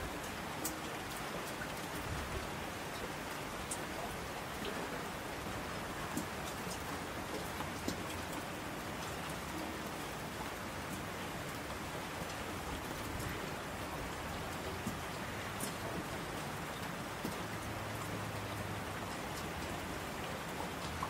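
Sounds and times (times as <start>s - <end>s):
single raindrops ticking: 0.0s - 2.0s, 5.9s - 12.4s
steady rain falling: 0.0s - 21.0s.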